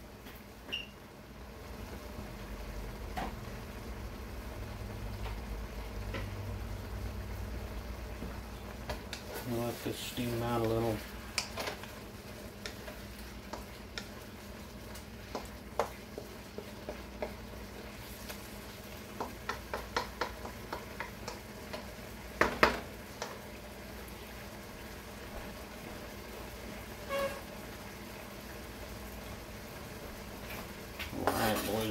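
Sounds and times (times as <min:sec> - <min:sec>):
food sizzling in wok: 0:00.0 - 0:31.9
wooden spatula clacking on wok: 0:15.2 - 0:17.4, 0:19.1 - 0:23.4.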